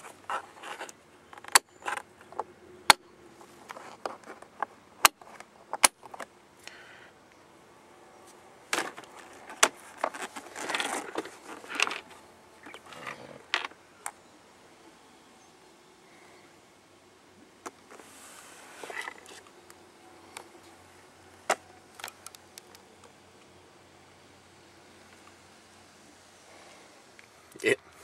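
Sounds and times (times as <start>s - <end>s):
rustling handling noise: 3.4s - 6.4s, 8.2s - 13.8s.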